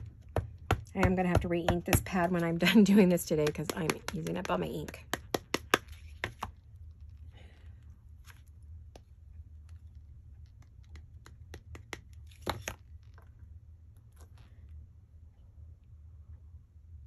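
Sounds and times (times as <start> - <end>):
low steady hum: 0.0 - 17.0
rubber stamp tapping: 3.4 - 6.5.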